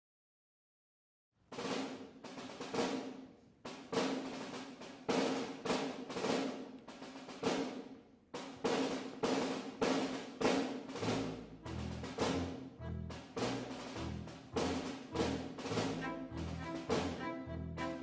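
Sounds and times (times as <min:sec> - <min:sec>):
drum strokes ringing: 0:08.7 - 0:18.0
low ensemble notes: 0:10.9 - 0:18.0.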